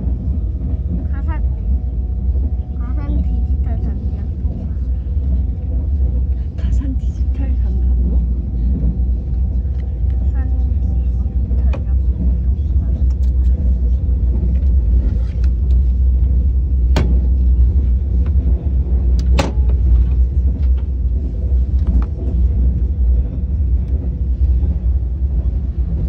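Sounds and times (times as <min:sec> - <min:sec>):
train rumble inside passenger car: 0:00.0 - 0:26.0.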